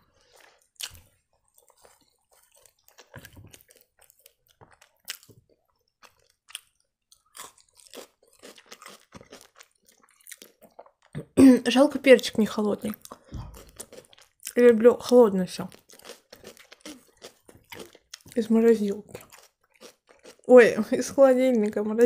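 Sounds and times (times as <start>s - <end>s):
crisp chewing crunches: 0.1s - 11.2s, 12.9s - 14.7s, 15.5s - 18.5s, 19.1s - 20.6s.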